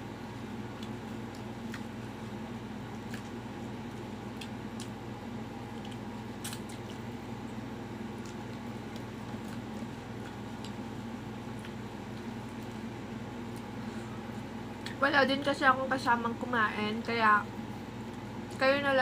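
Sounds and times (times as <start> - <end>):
low background hum: 0.0 - 19.0
chewing crunchy fried food: 0.3 - 15.0.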